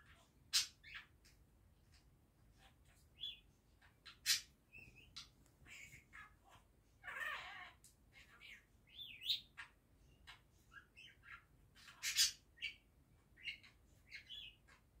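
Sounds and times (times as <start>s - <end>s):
budgerigar chattering: 8.9s - 12.8s.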